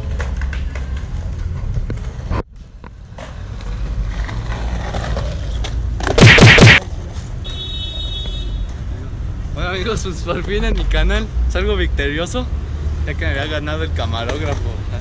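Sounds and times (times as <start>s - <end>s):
skateboard wheels rumbling on concrete: 0.0s - 2.3s, 3.0s - 6.2s.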